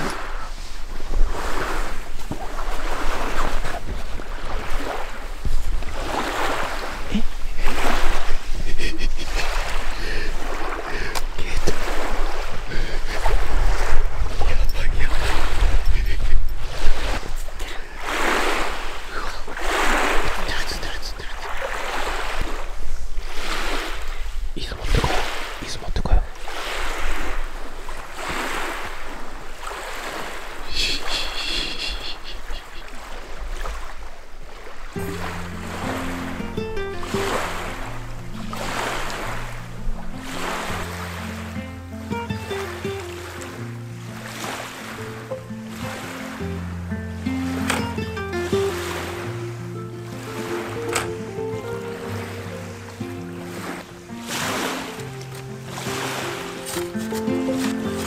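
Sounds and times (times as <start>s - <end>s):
wind buffeting microphone: 0.0s - 30.7s
small waves lapping on shore: 0.0s - 58.0s.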